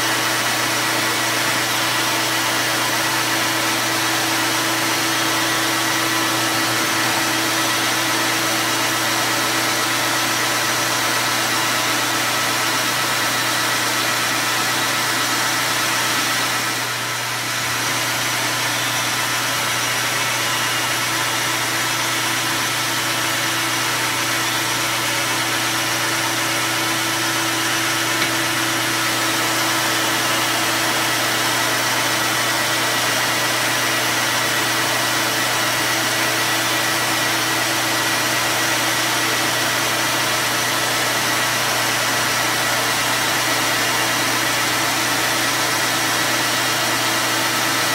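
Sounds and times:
metal lathe motor humming: 13.7 - 47.8.

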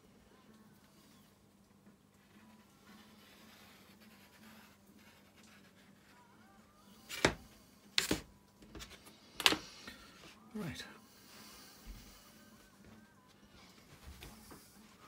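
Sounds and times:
chalk scraping along ruler: 2.8 - 6.0.

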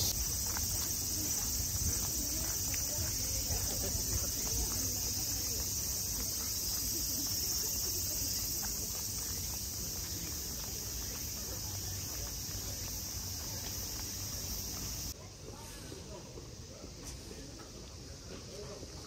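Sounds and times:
cicadas singing: 0.0 - 15.2.

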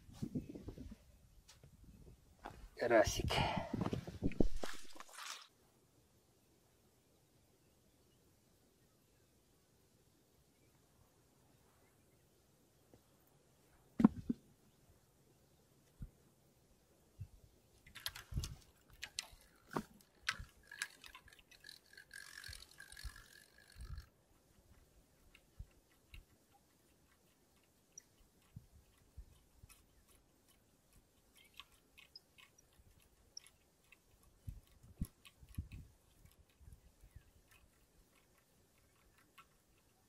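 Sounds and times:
faint reel ticking: 17.8 - 40.0
fishing reel clicks and knocks: 17.9 - 26.3.

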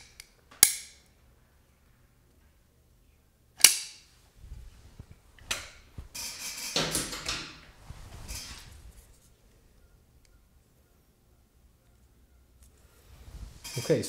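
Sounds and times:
plastic snap: 3.6 - 4.0.

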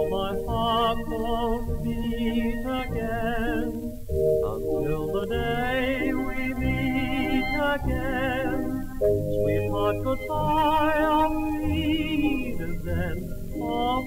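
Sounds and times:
man singing with vibrato: 0.0 - 14.0
orchestra on old record: 0.0 - 14.0.

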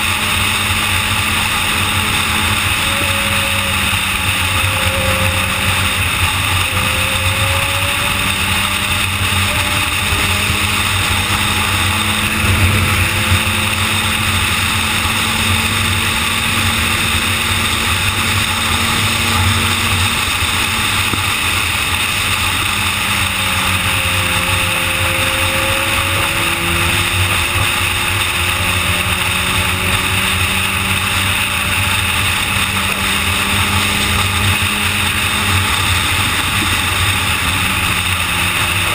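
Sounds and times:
motorcycle engine cruising: 0.0 - 38.9
wind rush: 10.2 - 19.3.

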